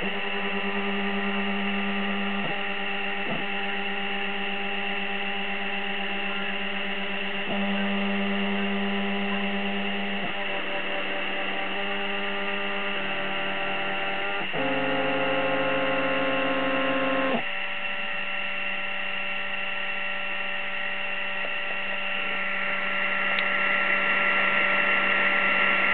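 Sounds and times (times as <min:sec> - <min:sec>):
stepper motors whining: 0:00.0 - 0:17.6
steady electrical hum: 0:00.0 - 0:25.9.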